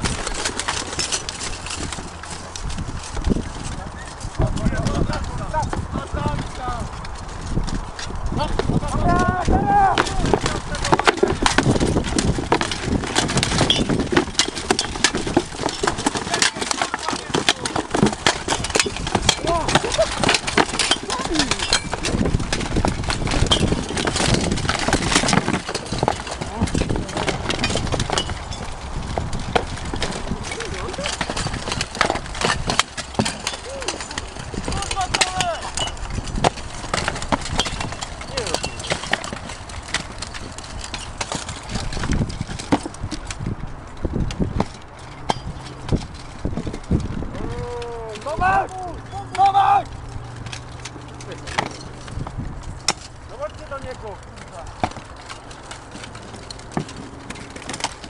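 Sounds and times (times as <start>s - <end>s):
steel armour and weapons clanking: 0.0s - 58.0s
people shouting: 8.9s - 10.3s, 33.6s - 34.0s, 47.3s - 49.9s.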